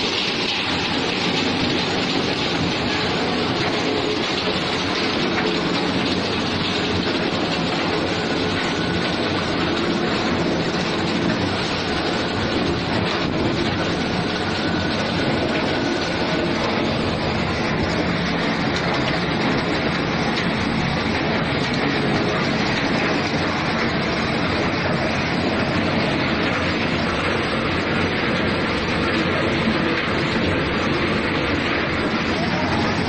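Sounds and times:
belt conveyor and motors running: 0.0s - 33.0s.

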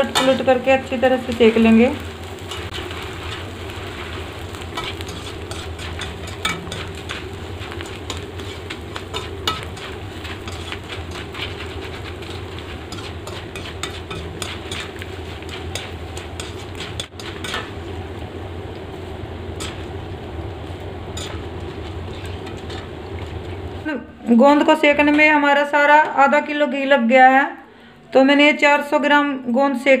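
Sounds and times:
gum pieces sizzling in oil: 0.0s - 26.9s
metal spoon scraping pan: 4.7s - 17.8s, 19.6s - 19.9s, 21.1s - 23.6s.

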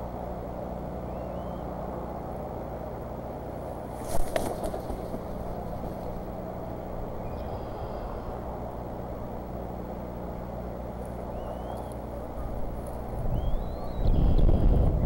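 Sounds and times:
steady low rumble: 0.0s - 15.0s
faint high chirp: 1.0s - 1.7s, 7.2s - 8.4s, 11.3s - 12.6s, 13.3s - 14.8s.

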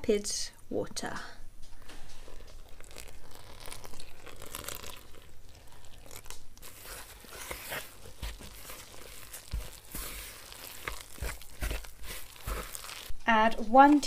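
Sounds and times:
wooden spoon scraping in bowl: 1.9s - 13.1s.

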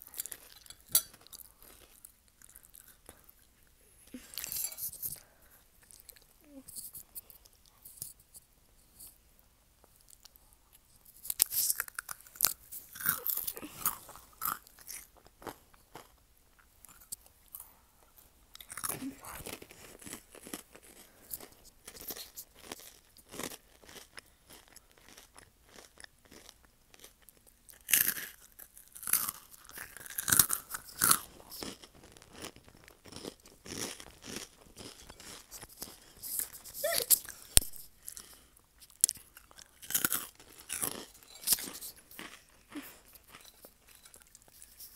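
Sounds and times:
quiet chewing: 0.0s - 9.2s, 9.8s - 44.9s
crunchy snack crunching: 11.0s - 17.6s, 18.6s - 44.9s.

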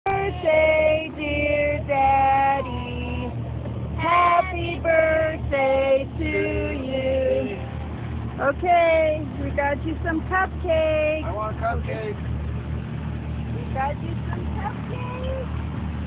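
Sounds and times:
boat motor humming: 0.0s - 16.0s
girls singing together: 0.1s - 3.4s, 4.0s - 7.6s.

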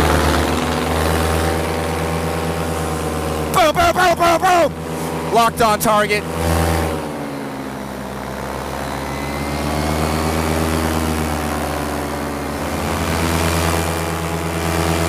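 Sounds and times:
paramotor engine and propeller drone: 0.0s - 15.0s.

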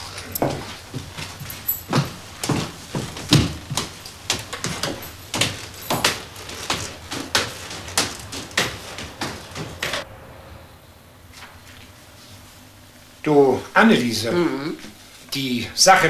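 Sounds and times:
footsteps on stairs: 0.0s - 10.0s.

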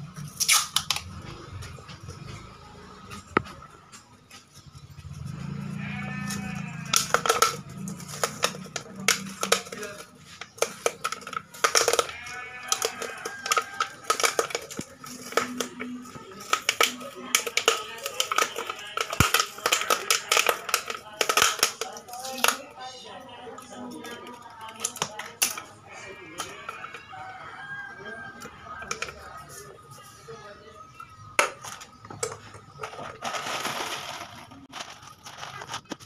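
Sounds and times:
music with singing and busy beat: 12.0s - 32.7s.

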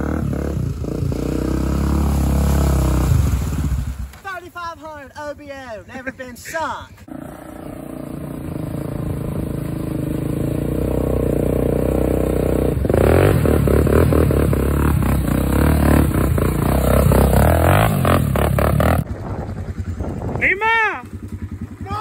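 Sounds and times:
off-road engine revving: 0.0s - 4.0s, 7.1s - 20.4s.

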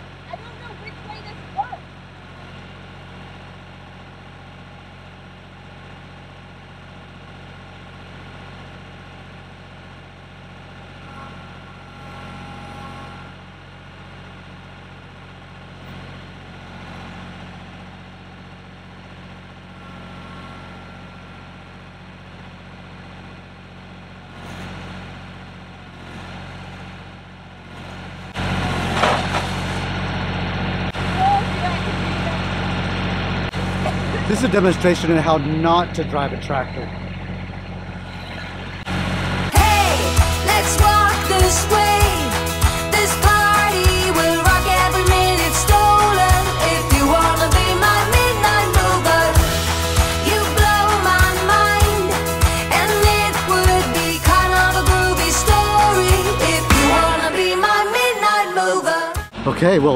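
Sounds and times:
tractor diesel engine running: 0.0s - 59.9s
loud broad noise: 38.0s - 59.5s.

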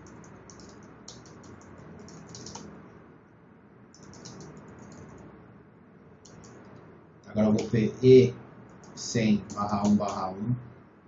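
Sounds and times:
typing on computer keyboard: 0.0s - 2.7s, 3.9s - 5.3s, 6.2s - 6.8s, 7.4s - 7.9s, 8.7s - 10.2s.

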